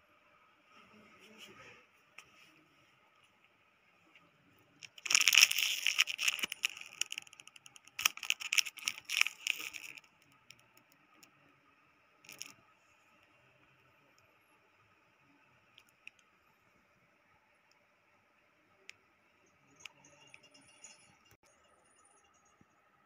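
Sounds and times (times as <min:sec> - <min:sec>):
plastic wrapping crinkling: 0:04.8 - 0:10.7, 0:12.3 - 0:12.6.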